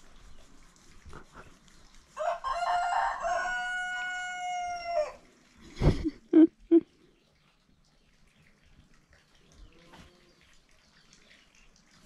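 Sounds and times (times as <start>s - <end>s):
rooster crowing: 2.2s - 5.2s.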